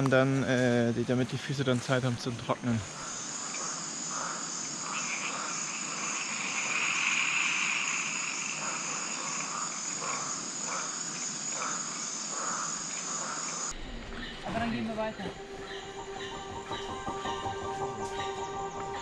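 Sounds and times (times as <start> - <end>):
insects trilling: 0.2 - 19.0
loud insect buzz: 2.8 - 14.0.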